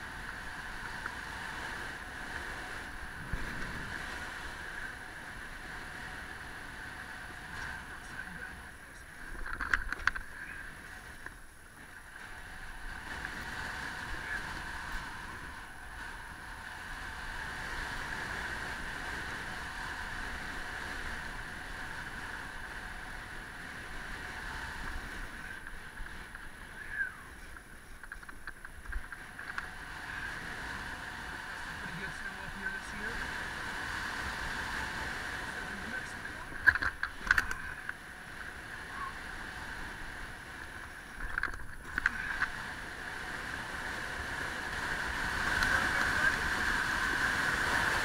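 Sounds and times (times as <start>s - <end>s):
snowboard scraping on snow: 0.0s - 8.5s
wind noise on microphone: 0.0s - 48.0s.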